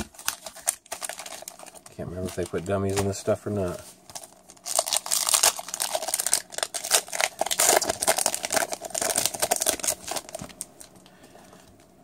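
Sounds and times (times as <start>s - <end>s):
foil wrapper tearing and crinkling: 0.0s - 11.0s.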